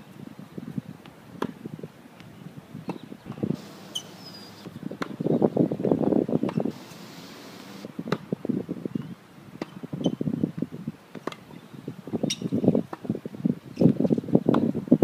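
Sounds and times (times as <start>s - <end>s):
wind buffeting microphone: 0.0s - 15.0s
tennis ball struck by racket: 2.9s - 5.2s.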